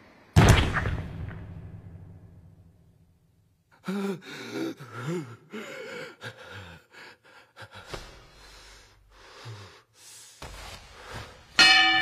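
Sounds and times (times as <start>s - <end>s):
person gasping and panting: 3.8s - 11.5s.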